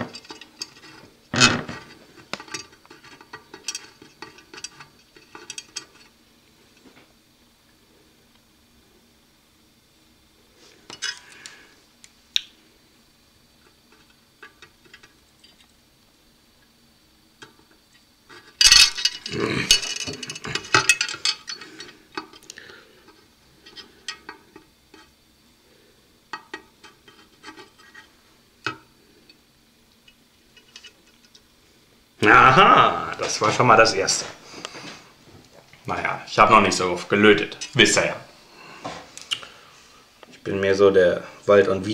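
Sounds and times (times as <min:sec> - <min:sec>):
clattering and handling noise: 0:00.0 - 0:07.2, 0:10.6 - 0:12.1, 0:13.6 - 0:15.8, 0:17.4 - 0:25.2, 0:26.2 - 0:29.4, 0:30.0 - 0:31.5, 0:33.0 - 0:39.4.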